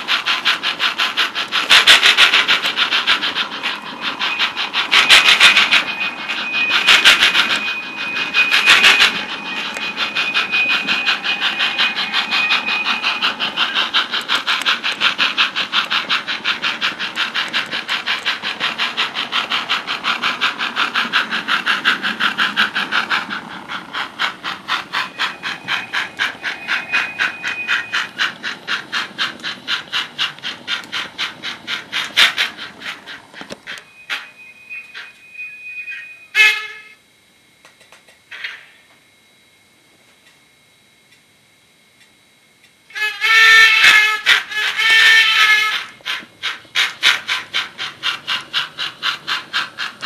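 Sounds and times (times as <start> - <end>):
model steam locomotive chuffing: 0.0 - 37.0, 37.7 - 39.0, 42.9 - 50.0
thin high steady tone: 2.5 - 14.0, 18.3 - 28.4, 33.8 - 37.1.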